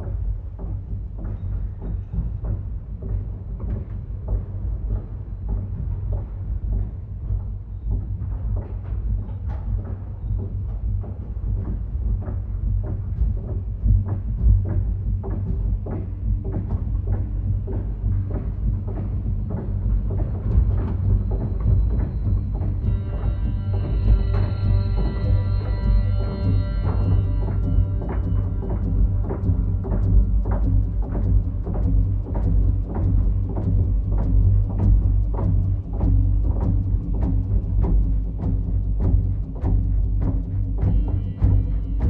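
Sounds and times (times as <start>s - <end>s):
irregular clicks and knocks: 0.0s - 24.5s.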